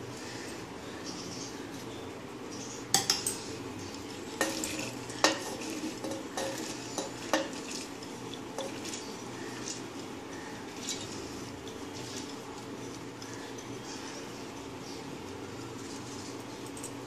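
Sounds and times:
bowl clinking against steel jar: 0:04.4 - 0:07.8.

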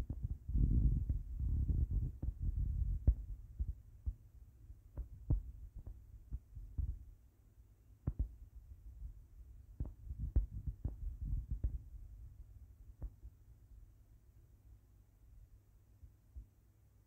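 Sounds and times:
fingers tapping on phone: 0:08.1 - 0:08.3.

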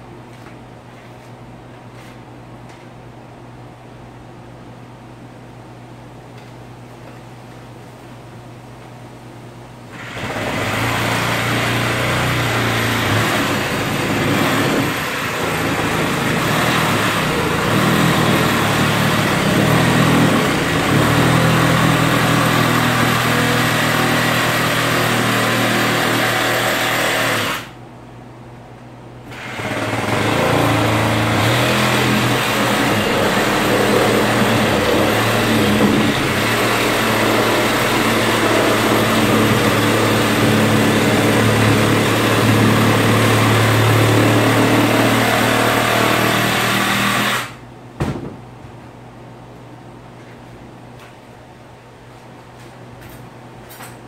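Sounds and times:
reciprocating saw cutting metal: 0:10.0 - 0:27.8, 0:29.3 - 0:47.6.

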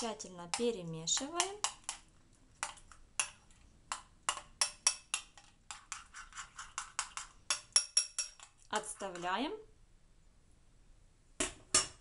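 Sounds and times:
spoon clinking in glass bowl: 0:06.8 - 0:08.5.

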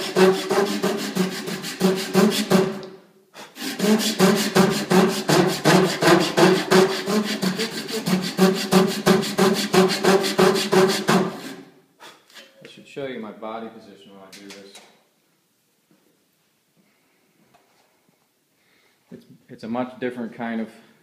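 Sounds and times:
handsaw cutting wood: 0:00.0 - 0:02.8, 0:03.4 - 0:11.6.

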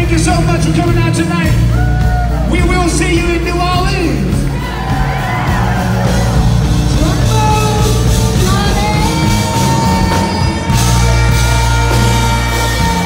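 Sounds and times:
live rock band playing: 0:00.0 - 0:13.0
people shouting and whooping: 0:01.6 - 0:02.9, 0:04.4 - 0:06.9, 0:08.8 - 0:13.0.

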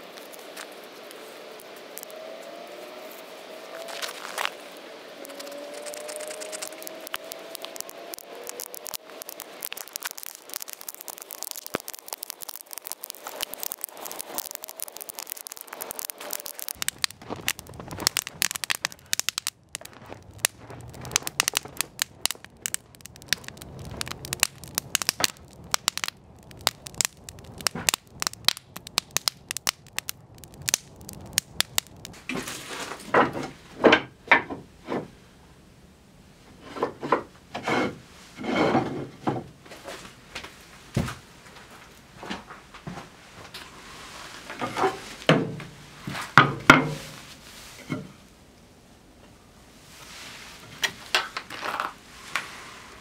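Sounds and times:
fire crackling and popping: 0:00.0 - 0:33.1
low rumble: 0:16.8 - 0:32.2.

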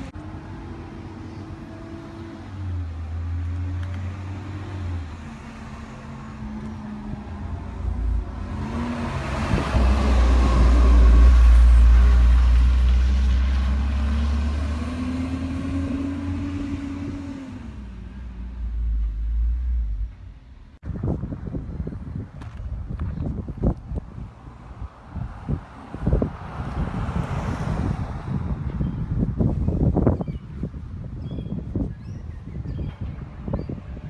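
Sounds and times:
garbage truck driving past: 0:07.8 - 0:20.1.

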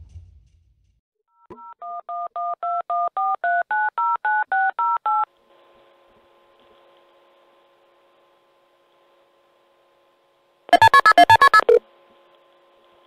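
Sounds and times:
touch-tone keypad beeps: 0:10.7 - 0:11.8.

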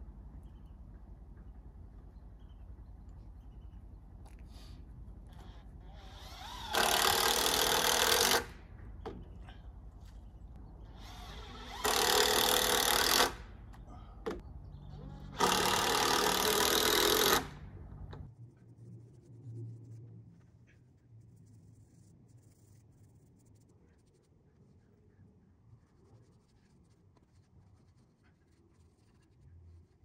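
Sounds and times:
handheld power tool: 0:05.9 - 0:08.5, 0:10.9 - 0:13.4, 0:15.4 - 0:17.6.

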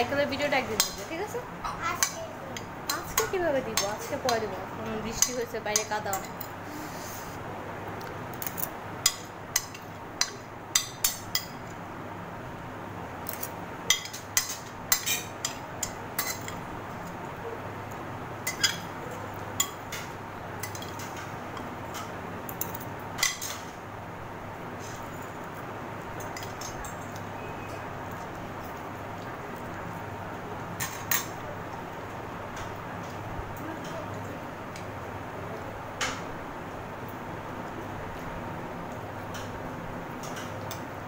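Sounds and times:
cutlery clinking on plates: 0:13.3 - 0:16.7, 0:18.4 - 0:23.7, 0:26.2 - 0:27.7.

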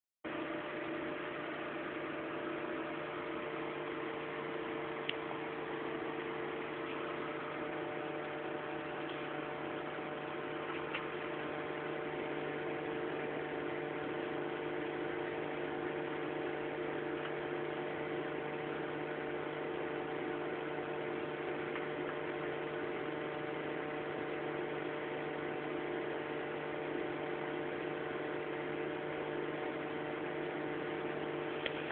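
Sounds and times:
electrical hum: 0:00.3 - 0:31.9.

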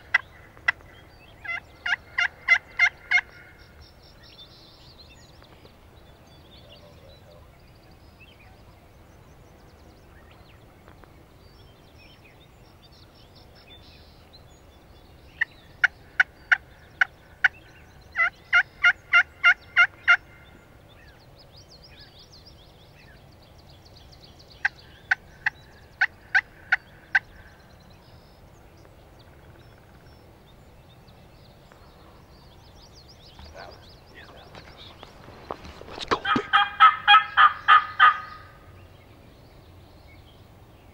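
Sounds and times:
turkey yelps: 0:01.4 - 0:03.3, 0:36.1 - 0:38.6.

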